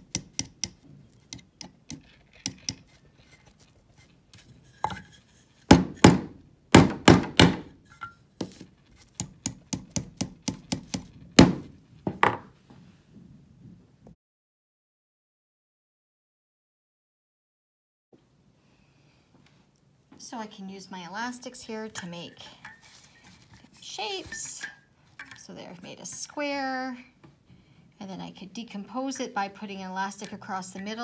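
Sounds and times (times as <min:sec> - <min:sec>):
hammer tapping nails into wood: 0:00.1 - 0:01.8, 0:09.2 - 0:11.6.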